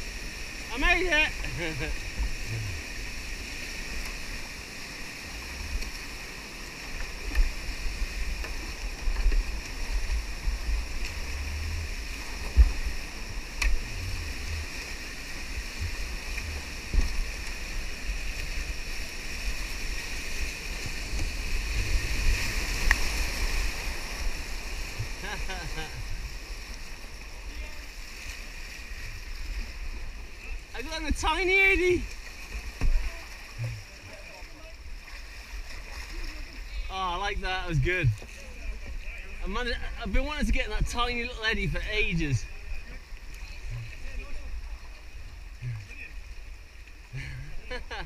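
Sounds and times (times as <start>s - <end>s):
whitewater rapids rushing: 0.0s - 28.1s.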